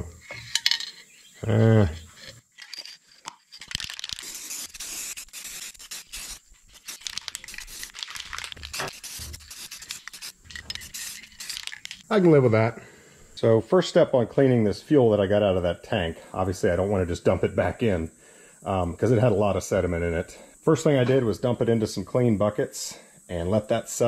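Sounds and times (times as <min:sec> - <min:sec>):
aerosol spray can hissing: 0:04.0 - 0:12.0.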